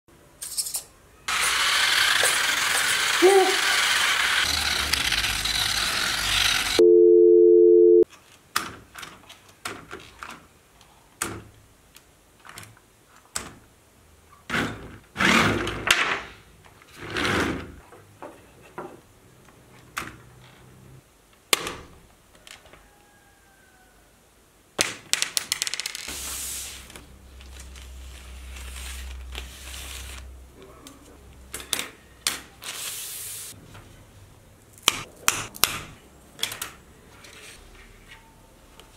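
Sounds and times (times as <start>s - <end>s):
rc car motor whirring: 1.3s - 6.8s
electronic beep tone: 6.8s - 8.0s
toy handling clicks and knocks: 25.0s - 26.1s.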